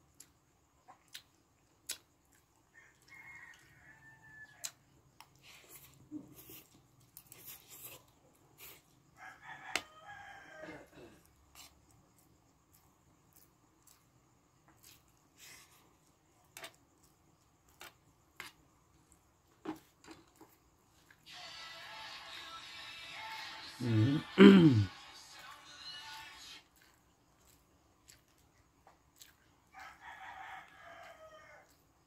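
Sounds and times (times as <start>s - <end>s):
rooster crowing: 2.7s - 4.8s, 9.2s - 11.2s, 21.3s - 26.5s, 29.7s - 31.8s.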